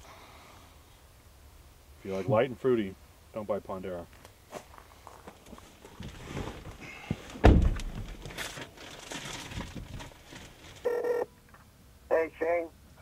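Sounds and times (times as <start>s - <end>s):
car door thunk: 7.4s - 8.2s
plastic bag rustling: 8.0s - 10.8s.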